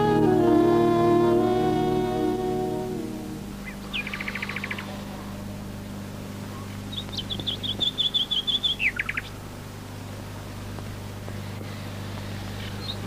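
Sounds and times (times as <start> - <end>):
songbird chirping: 0.0 - 5.4, 6.5 - 9.4
steady low hum: 0.0 - 13.0.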